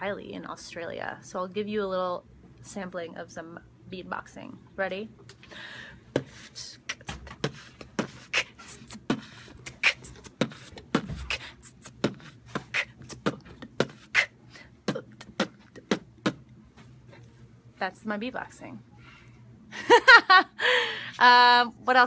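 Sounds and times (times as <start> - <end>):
woman beatboxing: 6.1 - 16.5.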